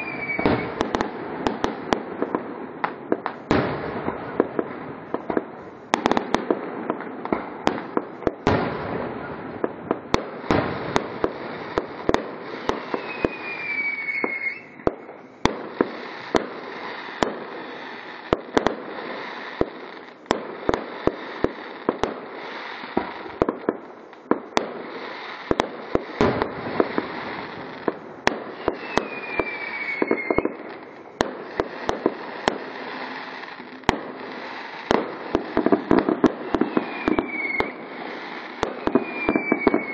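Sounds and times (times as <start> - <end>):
falling firework whistle: 0.0 - 1.0, 12.5 - 18.1, 26.1 - 33.6, 34.4 - 39.9
firework bangs: 0.0 - 39.9
firework crackle: 0.0 - 39.9.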